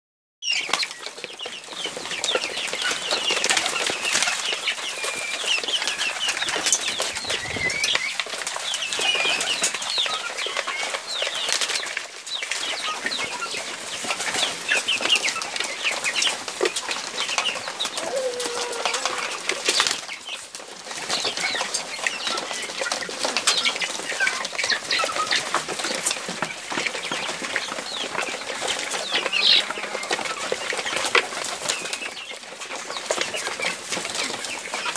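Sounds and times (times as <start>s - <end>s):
chickens and pigeons calling: 0.4s - 34.9s.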